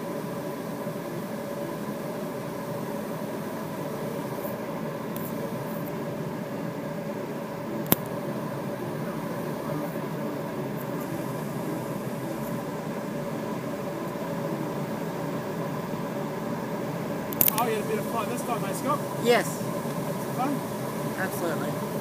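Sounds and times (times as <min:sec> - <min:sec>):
airflow rushing in cockpit: 0:00.0 - 0:22.0
sharp click: 0:17.3 - 0:17.7.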